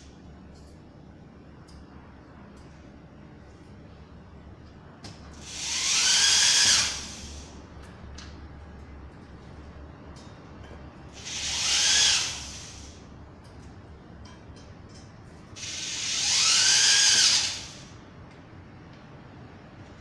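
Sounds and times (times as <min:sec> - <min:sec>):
electric drill driving into wood: 0:05.4 - 0:07.4, 0:11.2 - 0:13.0, 0:15.6 - 0:17.9.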